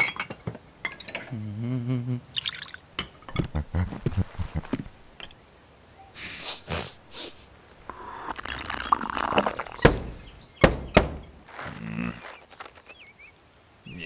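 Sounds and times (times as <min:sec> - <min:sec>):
sharp gulps: 0:02.3 - 0:02.8, 0:07.8 - 0:10.0
person slurping tea: 0:07.9 - 0:09.8.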